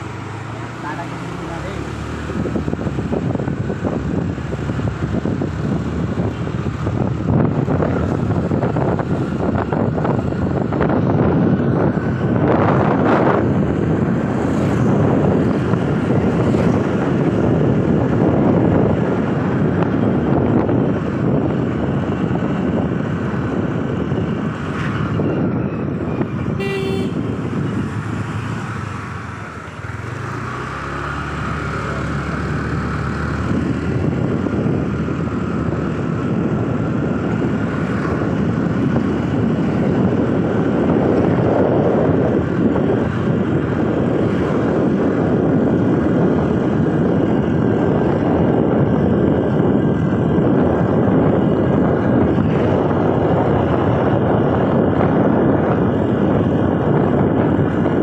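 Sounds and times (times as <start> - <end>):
wind noise: 0.0 - 58.0
scooter horn toot: 26.6 - 27.3.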